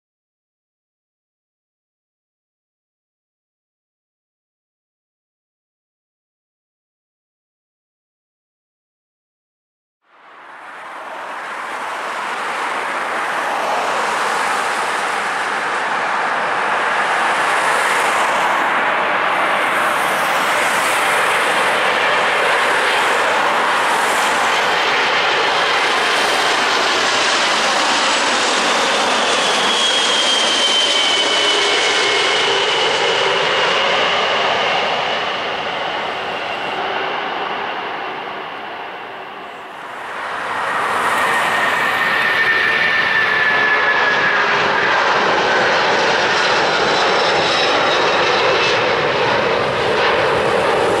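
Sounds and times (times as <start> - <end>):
jet engine roar: 10.2 - 51.0.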